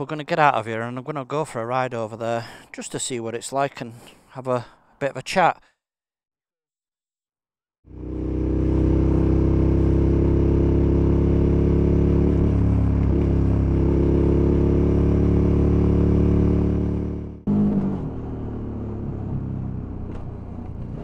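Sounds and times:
motorcycle engine and exhaust: 7.8 - 21.0.

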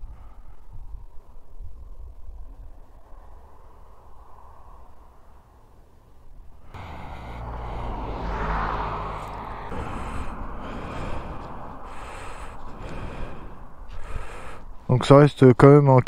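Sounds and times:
low rumble: 6.7 - 14.8
wind buffeting microphone: 6.8 - 15.0.

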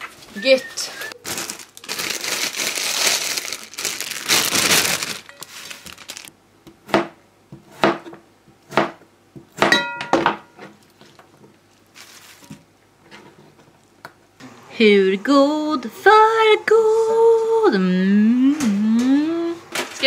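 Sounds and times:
plastic bag crinkling: 0.0 - 6.4, 11.0 - 12.6
knife chopping on cutting board: 6.7 - 9.8.

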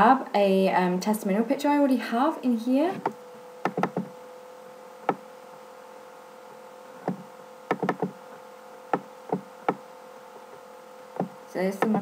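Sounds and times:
faint electrical hum: 0.0 - 12.0
computer mouse clicking: 3.0 - 4.1, 7.0 - 8.2.

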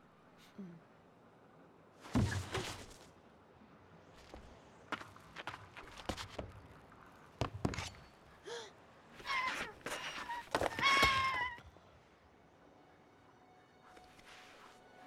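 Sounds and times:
thuds: 2.1 - 3.0
creature crying with high squeals: 9.2 - 11.7.

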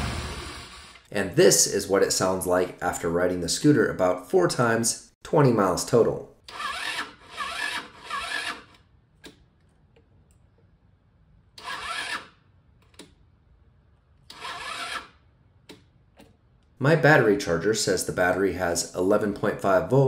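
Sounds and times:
electric starter cranking slowly: 6.4 - 8.9, 11.6 - 12.4, 14.3 - 15.2.

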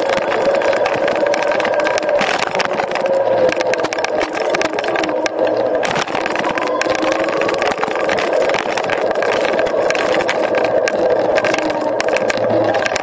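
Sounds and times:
electric scooter motor hum: 0.0 - 13.0
small clicks and rattles: 0.0 - 13.0
tyre and road noise: 0.0 - 13.0.

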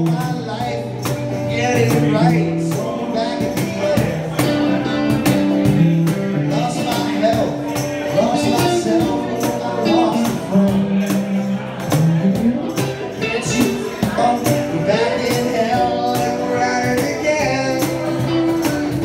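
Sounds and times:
cajon beat: 0.0 - 19.0.

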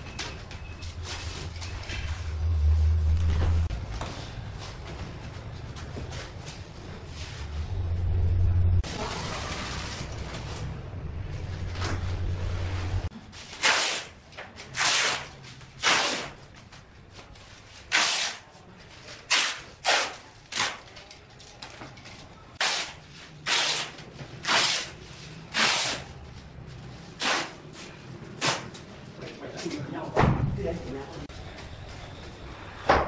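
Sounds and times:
packing tape ripping off roll: 13.4 - 16.4, 17.9 - 18.4, 19.3 - 21.0, 22.6 - 26.1, 27.2 - 27.6.

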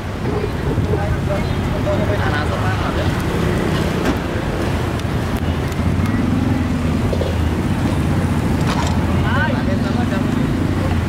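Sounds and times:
engine hum: 0.0 - 11.0
street traffic rumble: 0.0 - 11.0.

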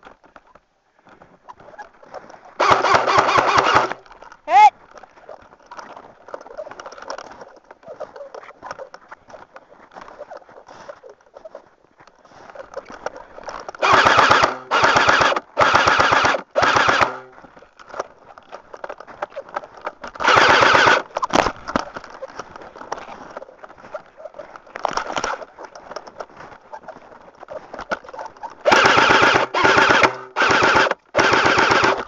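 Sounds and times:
airsoft rifle bursts: 2.6 - 4.6, 13.8 - 17.4, 20.2 - 21.1, 28.6 - 32.0.

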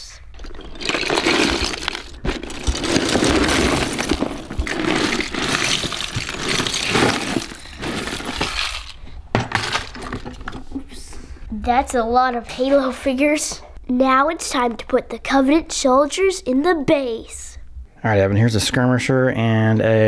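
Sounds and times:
plastic bricks clattering onto rug: 0.3 - 10.7.

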